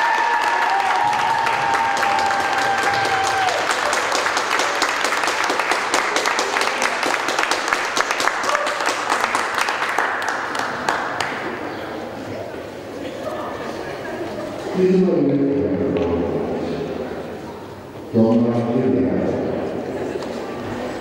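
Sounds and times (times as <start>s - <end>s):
crowd applauding: 0.0s - 11.7s.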